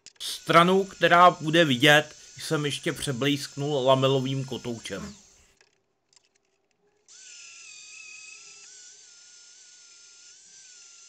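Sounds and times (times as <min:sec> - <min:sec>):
angle grinder whine: 0:00.1 - 0:05.5.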